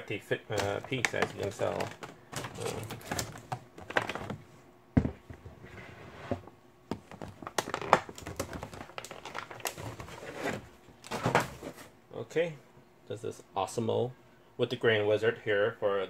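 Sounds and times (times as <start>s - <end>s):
plastic packaging crinkling: 0.5s - 4.4s, 7.1s - 11.2s.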